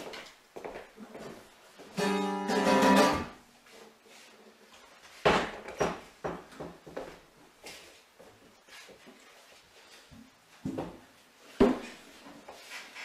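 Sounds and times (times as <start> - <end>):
acoustic guitar chord strummed: 2.0 - 3.4.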